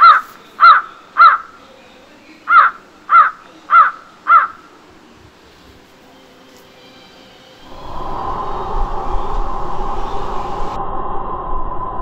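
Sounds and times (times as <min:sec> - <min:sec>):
crow cawing: 0:00.0 - 0:01.6, 0:02.5 - 0:04.7.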